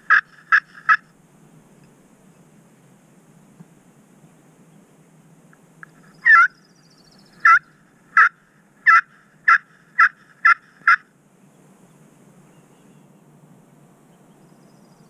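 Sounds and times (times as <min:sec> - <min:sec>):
turkey call yelps: 0:00.0 - 0:01.0, 0:06.1 - 0:06.6, 0:07.4 - 0:11.1.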